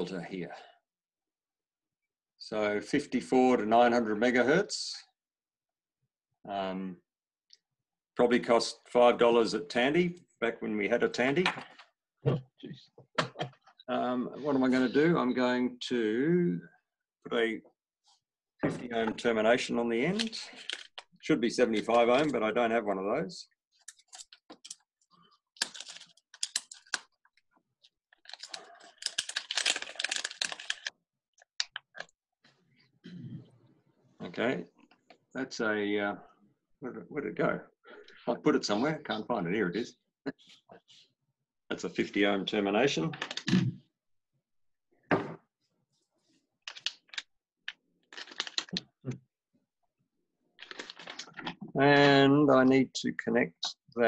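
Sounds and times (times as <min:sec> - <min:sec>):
hands rummaging small hard items: 0:20.1 - 0:21.0, 0:25.6 - 0:27.1, 0:28.2 - 0:30.9, 0:48.1 - 0:48.8, 0:50.6 - 0:51.6.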